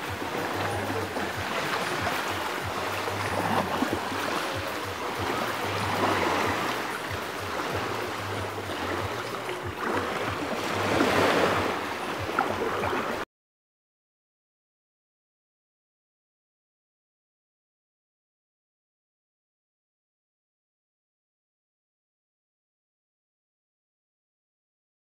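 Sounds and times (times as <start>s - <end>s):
small waves washing onto sand: 0.0s - 13.2s.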